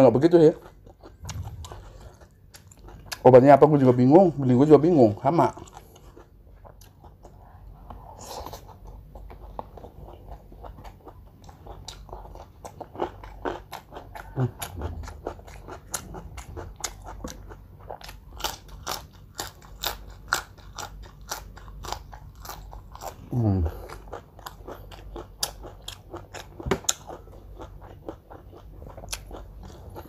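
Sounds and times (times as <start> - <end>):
crunchy food chewing: 0.3 - 4.5, 5.1 - 30.0
dull low thump: 1.2 - 1.8.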